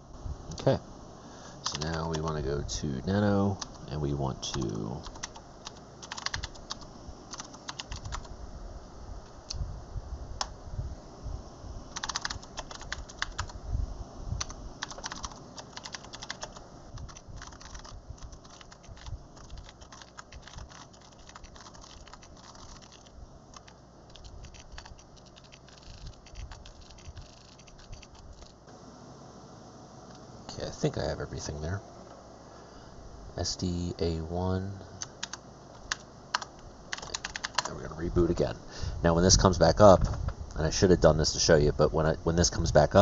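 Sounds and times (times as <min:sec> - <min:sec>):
typing on computer keyboard: 0:01.6 - 0:02.3, 0:04.6 - 0:08.3, 0:12.0 - 0:13.5, 0:14.4 - 0:28.5, 0:35.1 - 0:37.7.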